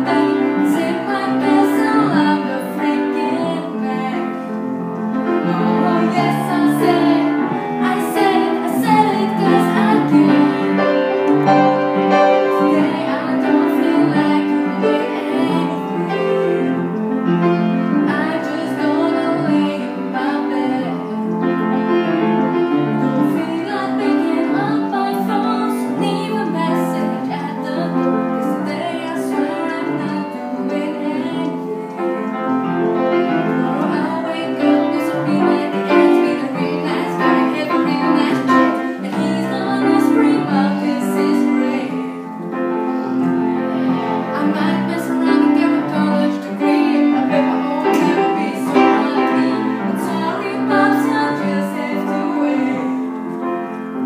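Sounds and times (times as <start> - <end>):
upright piano accompaniment: 0.0 - 54.0
girl singing: 5.4 - 10.8, 12.4 - 16.6, 23.1 - 31.8, 33.6 - 42.2, 43.8 - 53.1.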